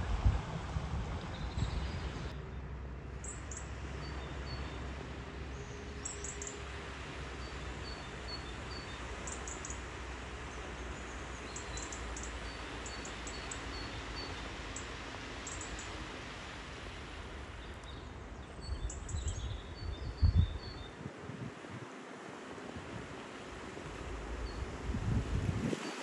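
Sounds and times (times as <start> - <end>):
low outdoor rumble: 0.0 - 13.0
small birds chirping: 10.5 - 16.0, 17.5 - 21.0.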